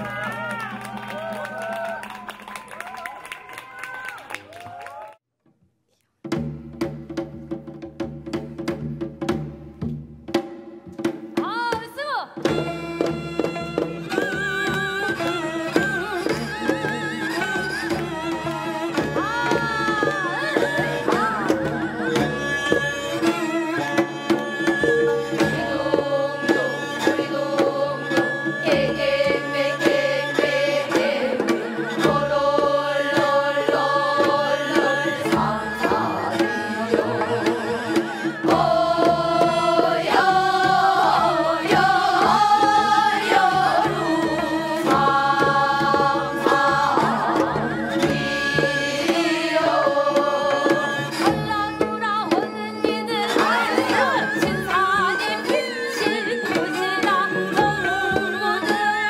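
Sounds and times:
hand drum: 6.3s - 59.0s
person singing with wide vibrato: 24.6s - 59.0s.

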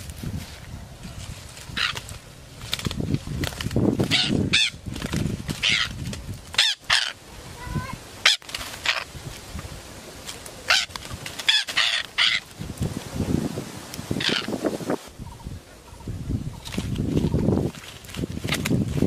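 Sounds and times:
rustling: 0.0s - 14.0s, 16.5s - 19.0s
parakeet squawking: 1.8s - 2.0s, 4.1s - 4.8s, 6.6s - 9.0s, 10.7s - 10.9s, 11.5s - 12.5s, 14.2s - 14.6s.

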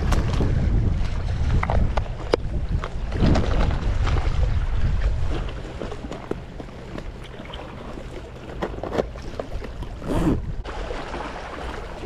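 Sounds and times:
wind rumble on microphone: 0.0s - 7.9s, 8.8s - 10.8s
fishing tackle clicks and rustle: 5.3s - 10.4s.

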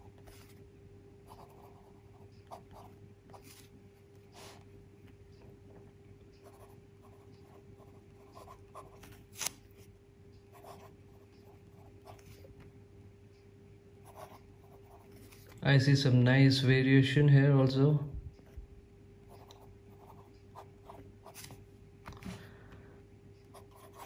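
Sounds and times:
steady low hum: 0.0s - 24.0s
fountain pen scratching on paper: 1.3s - 3.6s, 6.4s - 9.1s, 14.0s - 15.4s, 19.4s - 21.5s, 23.6s - 24.0s.

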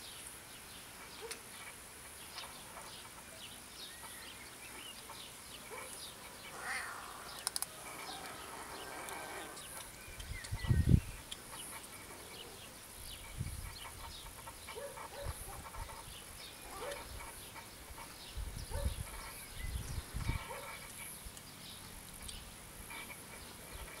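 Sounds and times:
kittens mewing: 6.5s - 9.6s.

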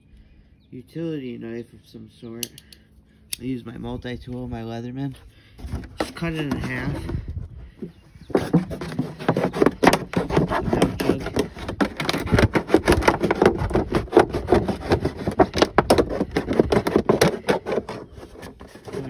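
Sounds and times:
knife sawing through plastic: 8.3s - 19.0s.

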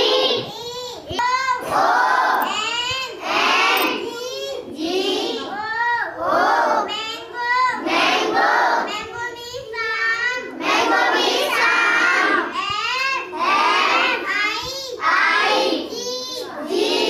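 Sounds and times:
girl singing: 8.9s - 10.4s.

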